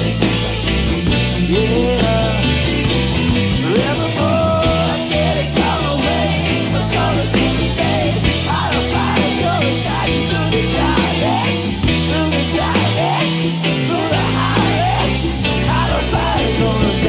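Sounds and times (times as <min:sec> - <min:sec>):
live rock band playing: 0:00.0 - 0:17.0.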